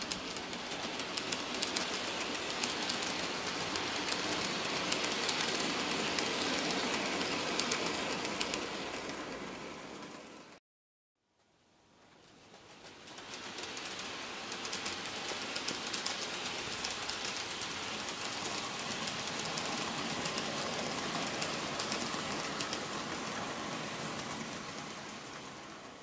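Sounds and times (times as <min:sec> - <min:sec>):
model train running whir: 0:00.0 - 0:10.6, 0:12.0 - 0:26.0
wheels clicking on rails: 0:00.0 - 0:10.6, 0:11.9 - 0:26.0.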